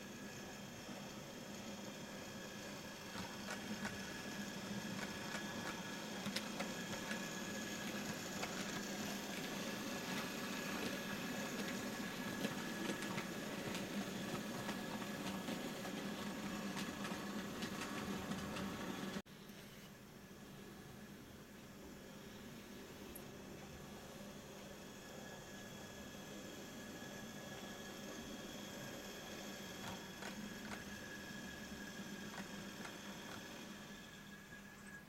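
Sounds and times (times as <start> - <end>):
model train motor whirring: 0.1 - 19.1, 25.3 - 35.0
wheels clicking over rail joints: 29.7 - 31.0.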